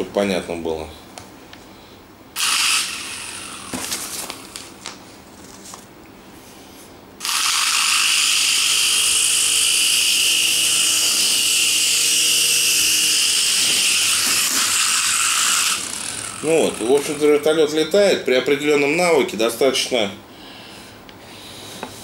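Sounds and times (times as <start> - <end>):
small electric motors whirring: 2.4 - 4.6, 7.2 - 17.5.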